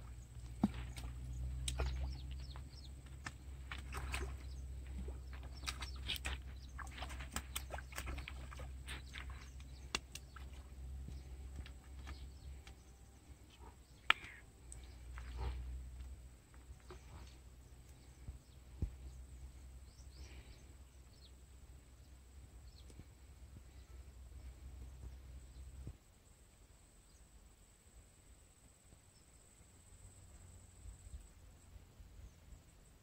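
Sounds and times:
low steady rumble: 0.0s - 33.0s
fish splashing in water: 0.4s - 12.1s.

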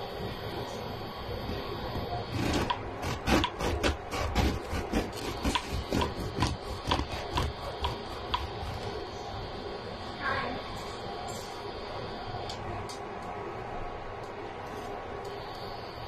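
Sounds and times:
bread knife sawing through crust: 2.2s - 9.0s.

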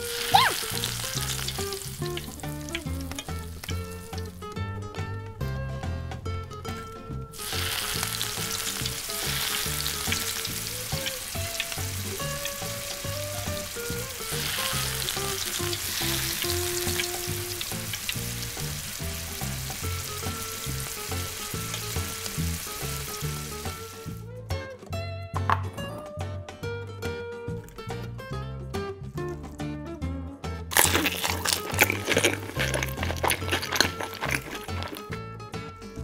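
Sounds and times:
fish deep-frying in hot oil: 0.0s - 4.5s, 7.4s - 24.2s, 30.7s - 35.1s.

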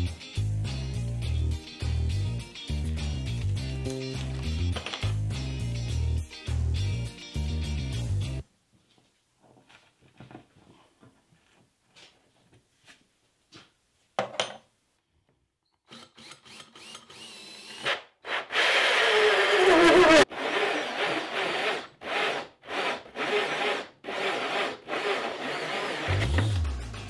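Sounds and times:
drill with hole saw cutting wood: 15.9s - 26.6s.

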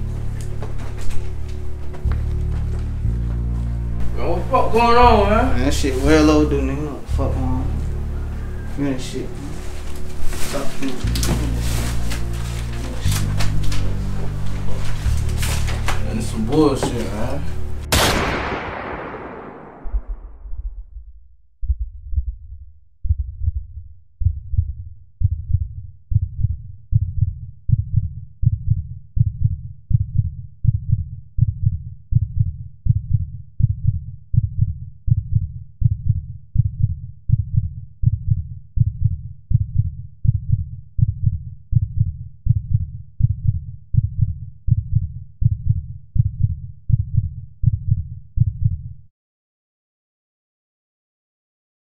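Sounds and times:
heartbeat thumps: 19.8s - 48.9s.

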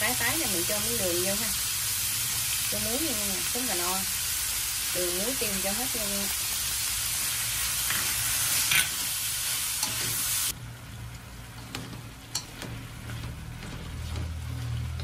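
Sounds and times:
vegetables sizzling in a wok: 0.0s - 15.0s
chopsticks clicking on wok: 11.6s - 14.3s.

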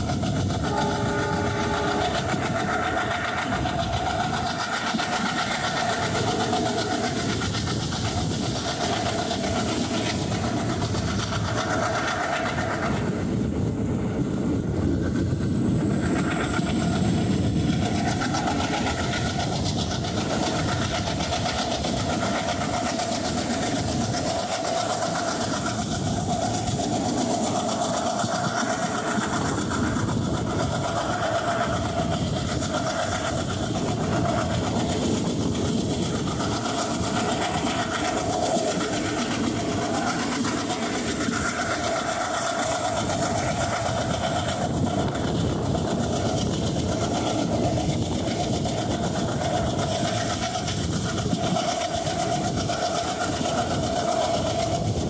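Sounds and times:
passenger train running on track: 0.0s - 55.0s
humming tones: 0.6s - 2.6s.

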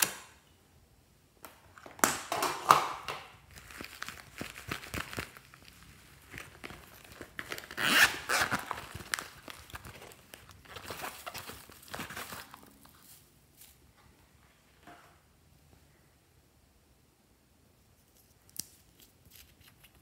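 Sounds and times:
bag rustling: 3.5s - 13.8s
purse zipper rasping: 7.6s - 8.6s
crinkly metallic tinsel: 11.2s - 13.8s.

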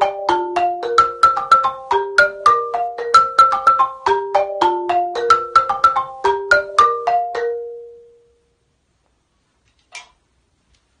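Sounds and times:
marimba melodic run: 0.0s - 8.1s.

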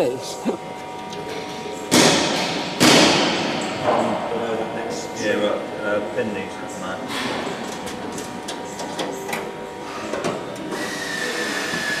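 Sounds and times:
power tool whining: 3.4s - 12.0s.

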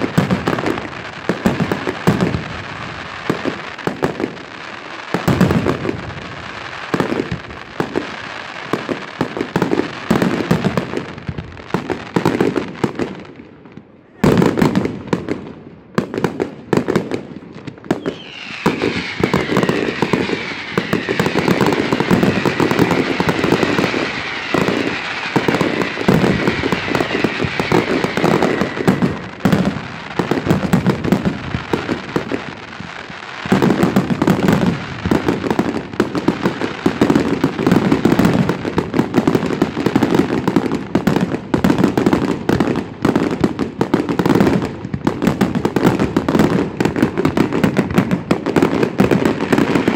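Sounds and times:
fireworks bangs and crackling: 0.0s - 49.9s
falling firework whistle: 17.9s - 44.6s, 45.3s - 49.9s.

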